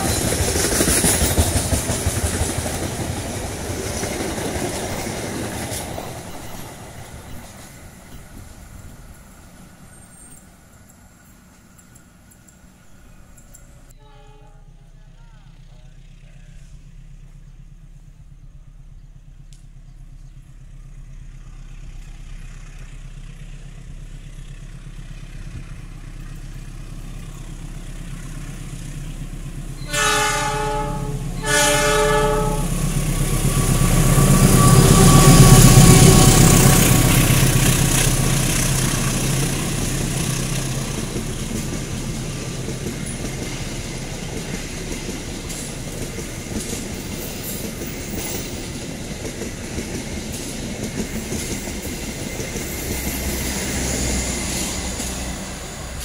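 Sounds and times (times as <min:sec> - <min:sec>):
locomotive engine rumble: 0:00.0 - 0:56.0
train horn: 0:13.9 - 0:15.4, 0:29.8 - 0:37.2
wheels rolling on rails: 0:32.9 - 0:56.0.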